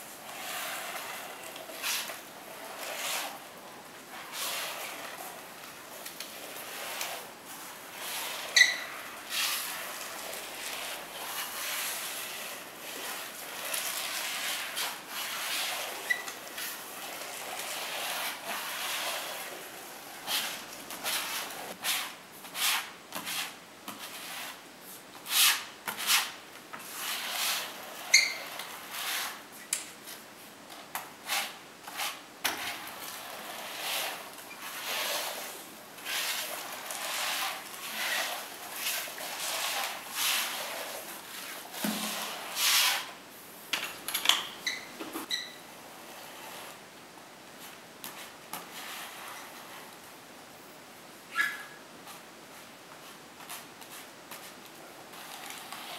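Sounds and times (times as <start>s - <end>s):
metal spreader scraping adhesive: 0.0s - 24.6s, 25.2s - 29.4s, 31.2s - 43.2s, 55.1s - 55.9s
short squeaks: 8.5s - 8.9s, 16.0s - 16.4s, 28.1s - 28.5s, 44.6s - 45.6s, 51.3s - 51.8s.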